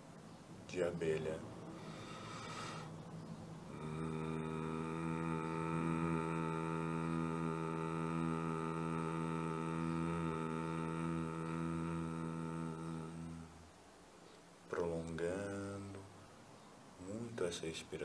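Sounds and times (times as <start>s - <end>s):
man humming: 3.7s - 13.6s.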